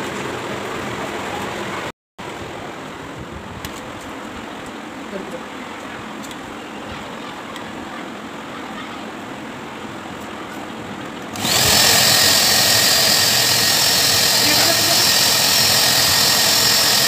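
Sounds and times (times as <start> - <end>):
fan-like hum: 0.1 - 17.0
blow dryer rushing air and whine: 11.3 - 17.0.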